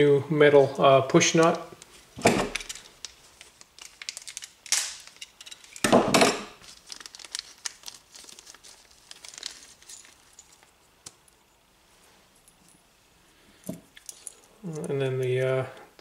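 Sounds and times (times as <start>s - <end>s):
plastic bag crinkling: 1.4s - 5.9s, 6.5s - 11.2s.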